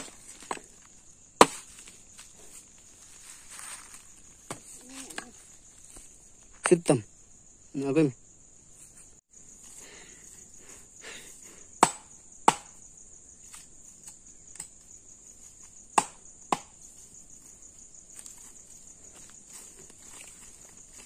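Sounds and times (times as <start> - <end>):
dry wood cracking: 0.0 - 6.1
high-pitched insect trill: 0.0 - 21.0.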